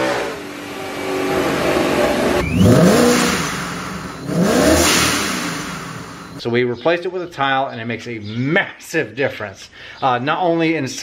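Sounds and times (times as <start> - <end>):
car engine revving: 0.0 - 6.4.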